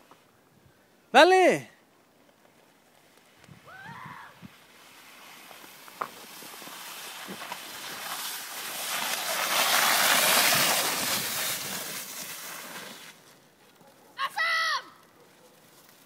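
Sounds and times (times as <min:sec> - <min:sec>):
sled scraping over snow: 0:03.7 - 0:13.9.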